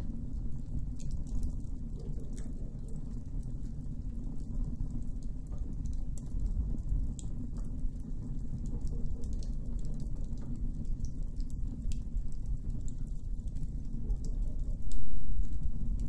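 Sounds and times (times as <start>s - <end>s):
campfire crackling and popping: 0.0s - 16.0s
low rumble: 14.6s - 16.0s.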